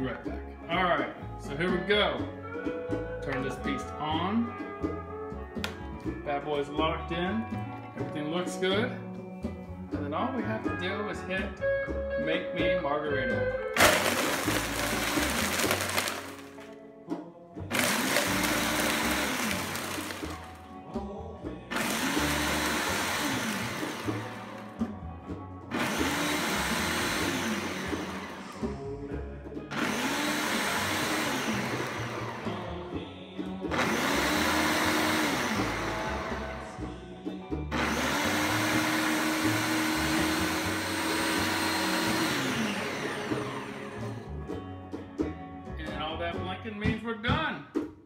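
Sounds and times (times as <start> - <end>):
blender motor pulsing: 13.8 - 16.5, 17.7 - 20.5, 21.7 - 24.7, 25.7 - 28.6, 29.7 - 32.6, 33.7 - 36.3, 37.7 - 44.3.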